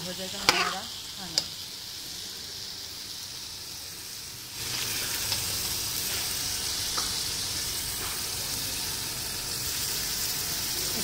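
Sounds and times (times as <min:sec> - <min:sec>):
beans sizzling in oil: 0:00.0 - 0:11.0
metal spoon clicking on pan: 0:00.4 - 0:01.6.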